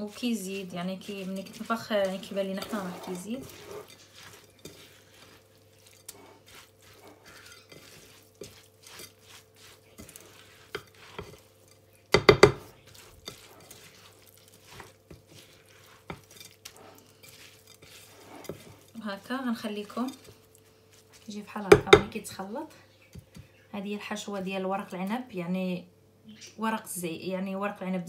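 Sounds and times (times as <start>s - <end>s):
spatula stirring in a bowl: 0.0s - 25.3s
loud knocks against a bowl: 12.2s - 12.6s.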